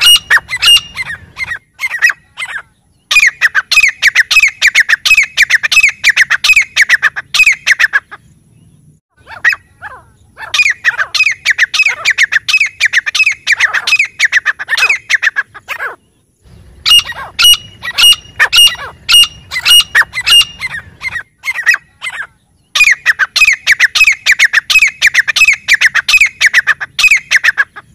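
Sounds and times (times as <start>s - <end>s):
bird calling repeated ringing notes: 0.0s - 8.2s, 9.1s - 27.9s.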